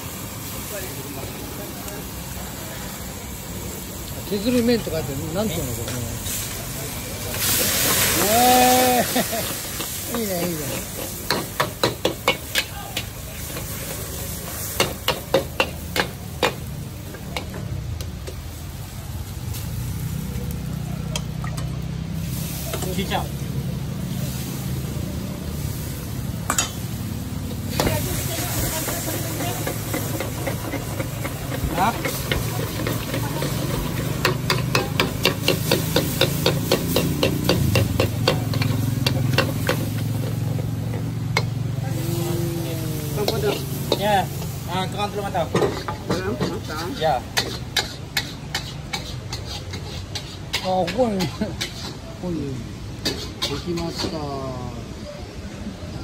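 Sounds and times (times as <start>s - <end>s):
gas burner rushing: 0.0s - 46.8s
noodles sizzling: 0.0s - 54.8s
spatula scraping a steel wok: 27.7s - 42.3s, 43.1s - 54.2s
metal spatula clanging on wok: 34.2s - 40.1s.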